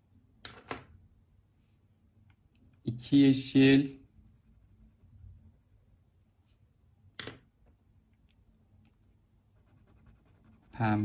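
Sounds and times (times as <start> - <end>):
marker strokes on paper: 1.6 - 6.7, 7.6 - 11.0.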